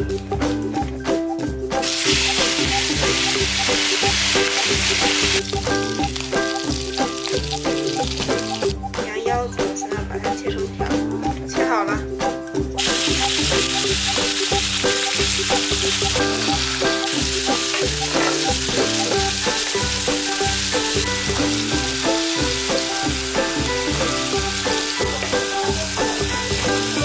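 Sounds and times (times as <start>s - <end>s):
background music with steady beat: 0.0s - 27.0s
kidneys sizzling in hot oil: 1.8s - 8.8s, 12.8s - 27.0s.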